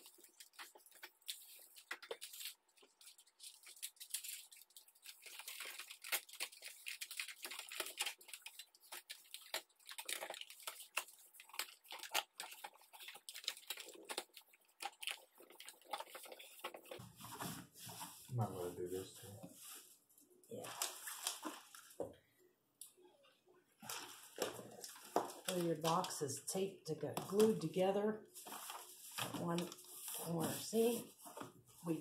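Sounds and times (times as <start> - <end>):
foil tape crinkling and tearing: 0.0 - 17.0.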